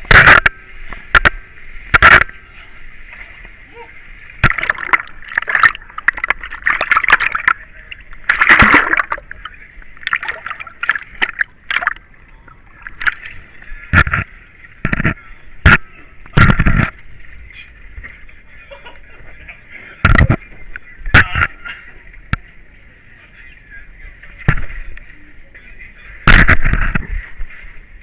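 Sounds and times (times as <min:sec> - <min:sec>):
muddy water splashing: 0:01.2 - 0:17.2.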